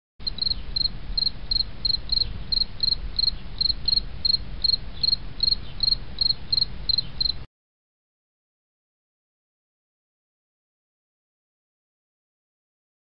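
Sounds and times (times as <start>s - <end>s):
steady low rumble: 0.2s - 7.4s
insect chirping: 0.2s - 7.5s.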